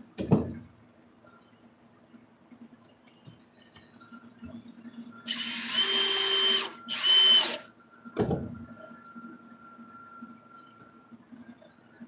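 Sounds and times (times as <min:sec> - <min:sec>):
cordless drill driving screw: 0:05.3 - 0:07.6.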